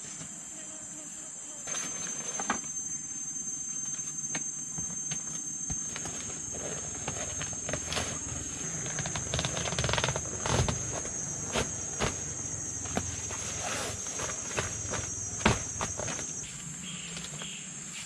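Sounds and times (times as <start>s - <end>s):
high insect drone: 0.0s - 18.0s
canvas rustling: 6.1s - 16.4s.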